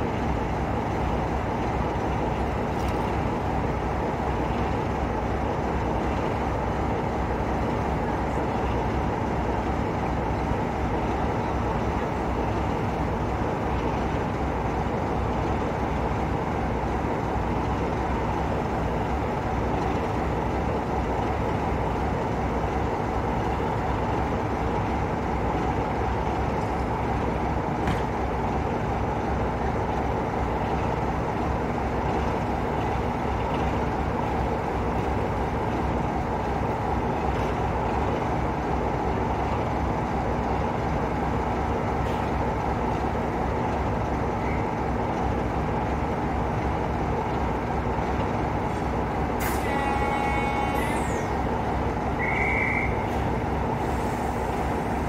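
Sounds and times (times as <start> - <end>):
diesel locomotive engine idling: 0.0 - 55.0.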